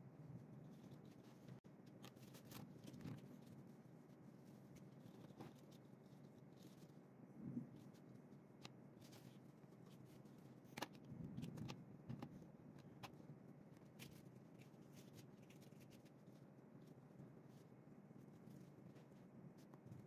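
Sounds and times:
paper rustling: 0.7 - 7.0.

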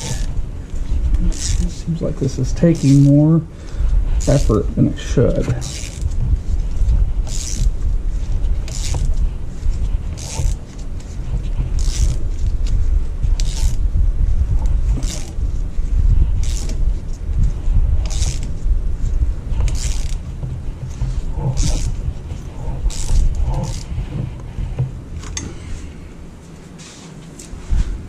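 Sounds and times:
low rumble: 0.0 - 26.8
hand ratchet clicking: 1.2 - 1.8, 5.4 - 6.2, 7.2 - 7.7, 8.6 - 9.2, 10.1 - 10.6, 11.8 - 12.2, 13.4 - 13.8, 14.9 - 15.4, 16.4 - 16.8, 18.0 - 18.5, 19.6 - 20.2, 21.5 - 22.0, 22.7 - 23.9.

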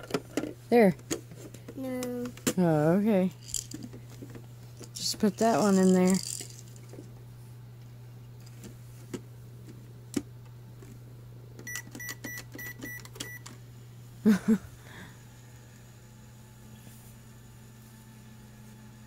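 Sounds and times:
toy microwave keypad beeps: 11.6 - 13.5.

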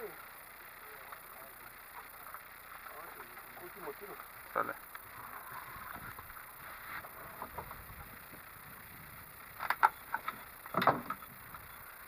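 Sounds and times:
sharp knocks and clicks: 9.6 - 11.6.

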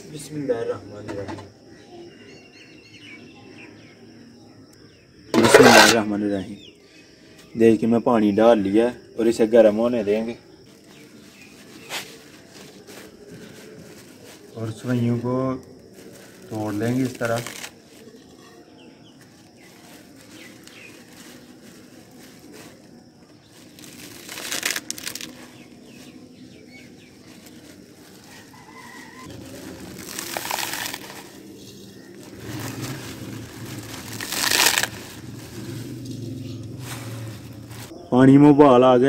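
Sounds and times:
plastic packet crinkling: 15.9 - 18.3, 19.4 - 22.8, 23.4 - 37.9
dry noodles crunching: 15.9 - 37.9.

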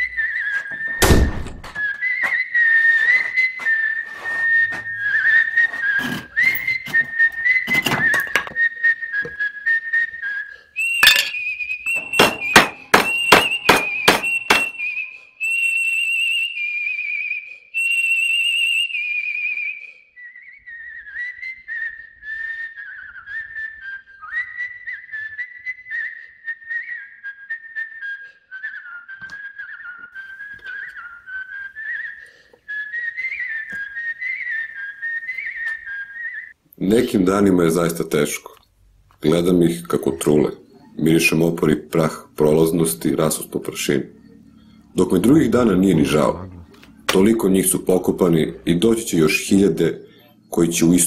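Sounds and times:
person whistling a tune: 0.0 - 1.0, 1.8 - 36.6
hammer blows on wood: 10.9 - 15.0
knocks: 11.9 - 14.8.

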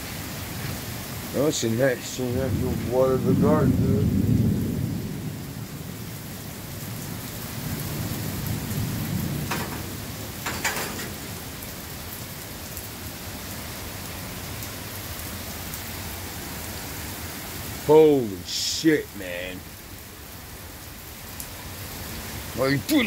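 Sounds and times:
heavy rain pouring: 0.0 - 23.0
thunder rumbling: 2.0 - 11.9.

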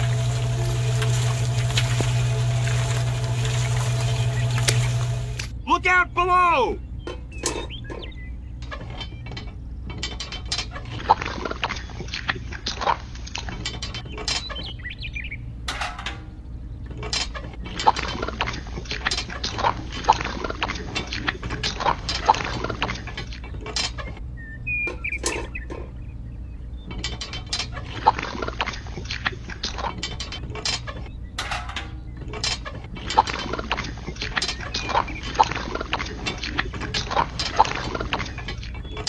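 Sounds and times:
low motor hum: 0.0 - 5.7, 6.8 - 39.0.

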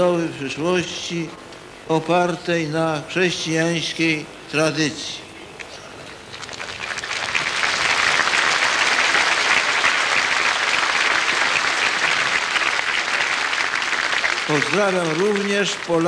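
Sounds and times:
crowd applauding: 6.3 - 16.0.

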